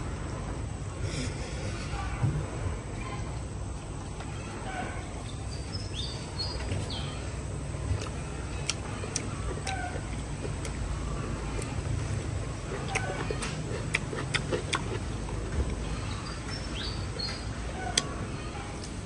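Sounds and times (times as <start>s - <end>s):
steady low rumble: 0.0s - 19.0s
birds chirping: 4.2s - 19.0s.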